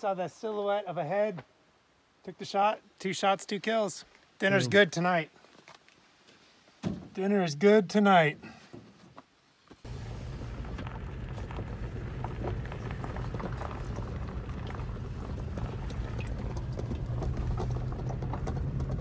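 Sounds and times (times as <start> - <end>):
gravel clicks and rattles: 9.7 - 19.0
engine and tyres droning: 9.9 - 19.0.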